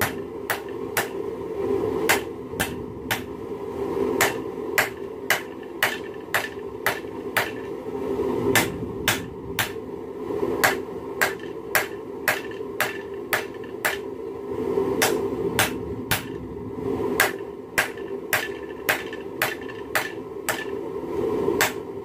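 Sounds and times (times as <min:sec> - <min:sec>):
hammer striking metal on anvil: 0:00.0 - 0:01.2, 0:02.1 - 0:03.3, 0:04.2 - 0:07.7, 0:08.5 - 0:09.8, 0:10.6 - 0:14.1, 0:15.0 - 0:16.4, 0:17.2 - 0:20.8, 0:21.6 - 0:21.8
steady rushing noise: 0:00.0 - 0:22.0.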